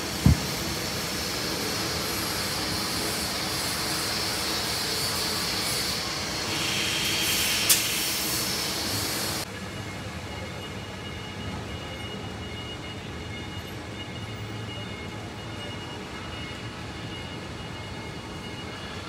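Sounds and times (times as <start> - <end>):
machinery and ventilation hiss: 0.0 - 19.0.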